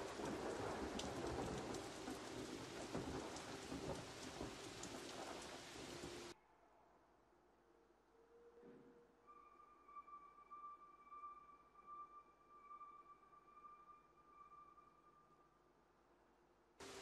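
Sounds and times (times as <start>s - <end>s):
sharp crackles: 0.0s - 6.3s.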